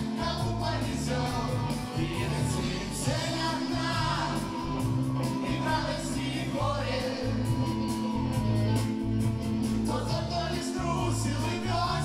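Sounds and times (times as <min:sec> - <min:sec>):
lead vocal singing: 0:00.0 - 0:08.3, 0:09.7 - 0:12.0
rock band playing live: 0:00.0 - 0:12.0.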